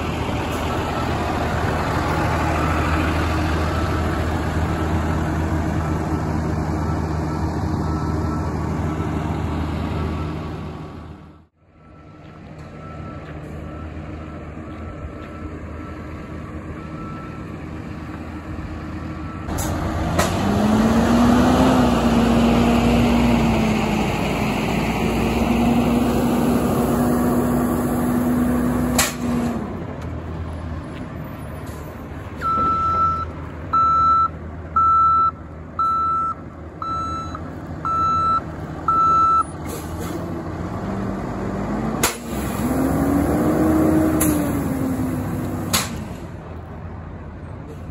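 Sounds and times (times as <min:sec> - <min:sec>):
diesel engine and pump running: 0:00.0 - 0:47.9
reversing alarm beeping: 0:11.8 - 0:17.5, 0:32.4 - 0:39.5.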